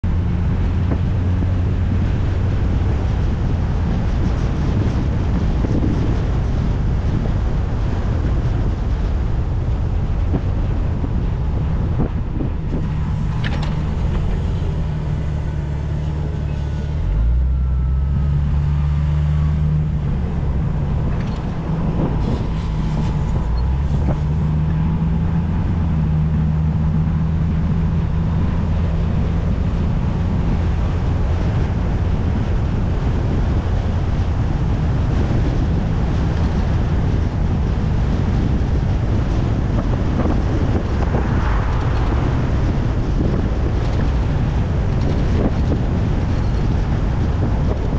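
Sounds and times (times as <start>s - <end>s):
car engine and road noise: 0.0s - 47.9s.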